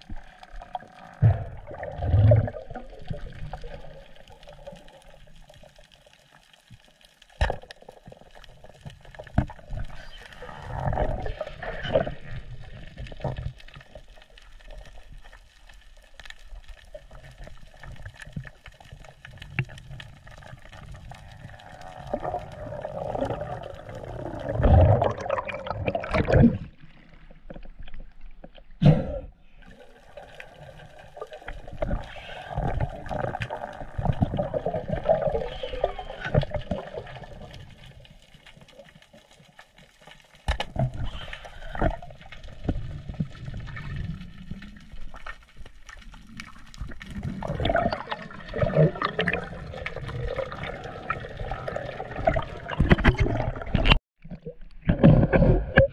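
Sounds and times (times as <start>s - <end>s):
underwater bubbling: 0.0s - 55.9s.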